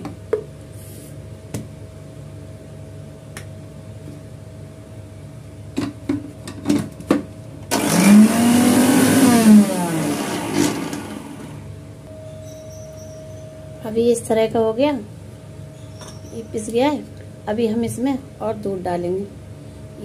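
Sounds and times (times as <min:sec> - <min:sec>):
mixer grinder motor whining: 0:07.7 - 0:11.7.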